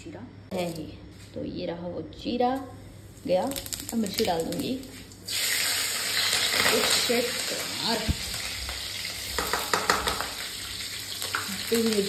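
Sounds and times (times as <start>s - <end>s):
chillies sizzling in hot oil: 3.1s - 12.0s.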